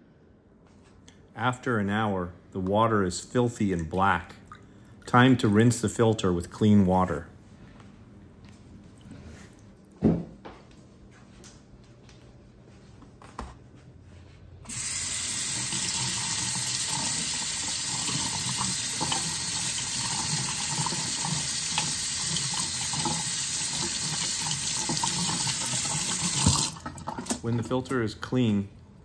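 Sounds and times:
faucet running into steel sink: 14.7s - 27.4s
water splashing over filter: 14.8s - 27.4s.

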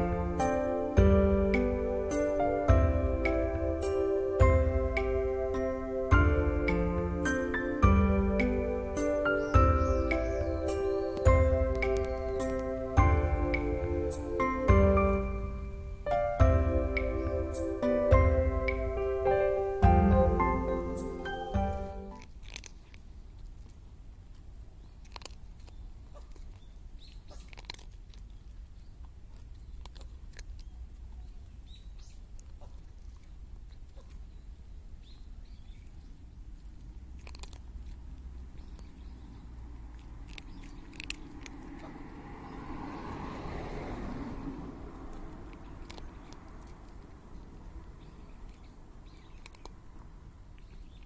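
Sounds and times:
broad swell of noise: 10.0s - 21.6s
kitten crunching dry food: 10.3s - 12.9s, 20.7s - 35.0s, 35.7s - 43.3s, 44.9s - 51.0s.

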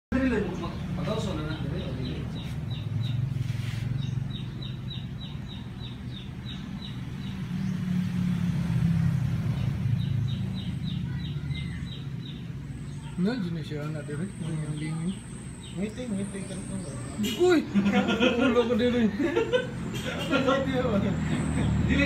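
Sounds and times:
vehicle engine rumbling: 0.1s - 22.0s
bird chirping: 0.2s - 17.7s.

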